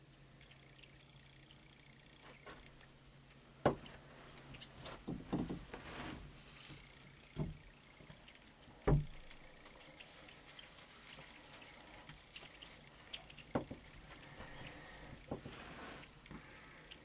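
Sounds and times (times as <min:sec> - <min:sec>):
rustling: 0:03.7 - 0:16.8
dull thumps: 0:07.3 - 0:07.6, 0:08.8 - 0:09.4.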